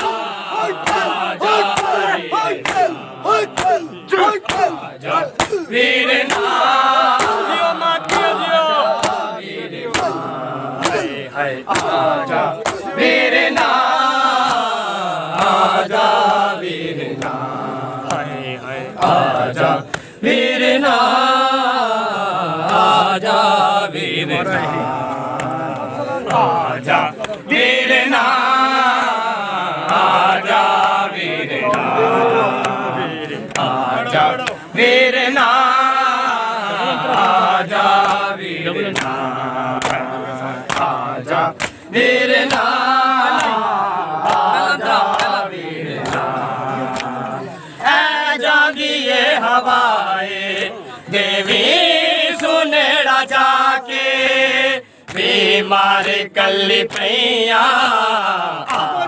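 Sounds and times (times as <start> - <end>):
hands slapping chests: 0.0 - 15.7, 19.8 - 20.2, 25.0 - 26.5, 27.2 - 27.5, 29.8 - 30.2, 32.6 - 33.8, 34.4 - 34.7, 38.0 - 38.2, 38.9 - 47.3, 56.9 - 57.1, 58.6 - 59.0
men chanting in unison: 0.0 - 59.0.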